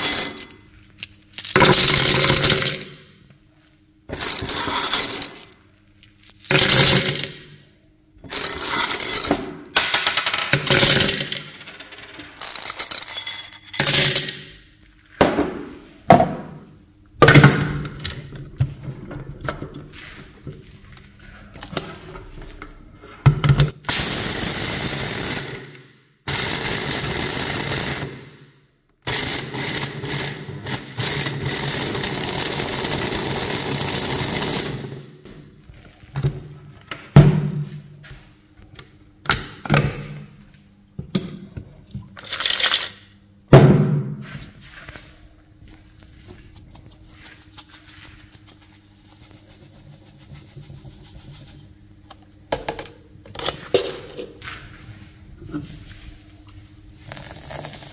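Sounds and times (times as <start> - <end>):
electric chopper grinding candies: 1.4 - 2.8, 6.4 - 7.4, 23.9 - 28.2, 29.1 - 35.0, 57.1 - 57.9
candies clattering into plastic bowl: 42.2 - 43.0.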